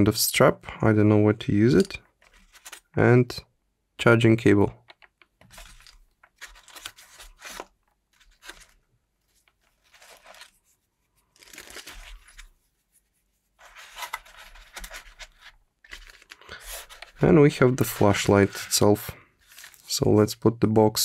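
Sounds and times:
plastic bag crinkling: 11.2s - 12.5s, 15.8s - 18.8s, 19.4s - 20.0s.

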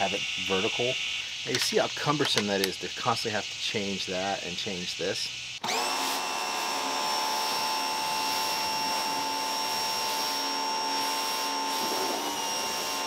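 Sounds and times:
pressure washer motor whine: 0.0s - 3.9s, 5.6s - 13.0s
water jet spraying on car: 11.0s - 13.0s.

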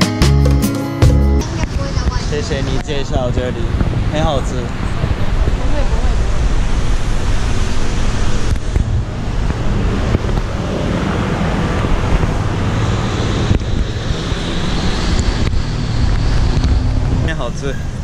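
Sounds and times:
street traffic passing: 0.4s - 18.0s
wind rumble on microphone: 1.4s - 18.0s.

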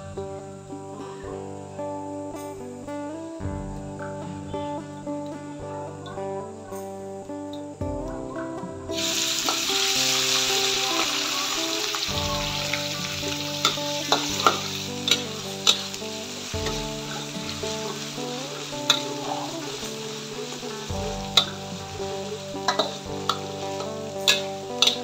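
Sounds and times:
spices sizzling in hot oil: 8.9s - 25.0s
spatula clinking against wok: 12.6s - 25.0s.

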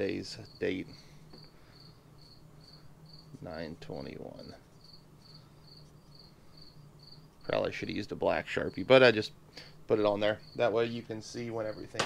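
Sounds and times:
cricket chirping: 0.2s - 3.3s, 4.4s - 7.7s, 9.6s - 10.9s.

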